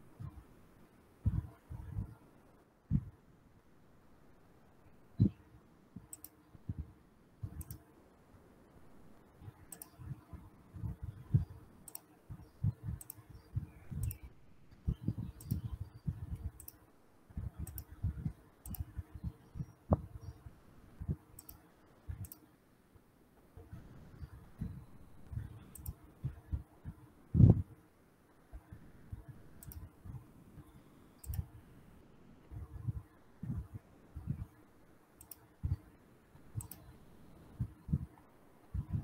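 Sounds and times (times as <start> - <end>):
faint steady hum: 0.0 - 39.0
mouse and keyboard clicks: 6.0 - 6.4, 7.5 - 7.8, 9.7 - 10.0, 11.9 - 15.8, 16.4 - 16.8, 17.6 - 18.0, 18.6 - 19.4, 21.4 - 21.6, 25.2 - 26.0, 29.6 - 29.9, 35.2 - 35.8, 36.6 - 36.9.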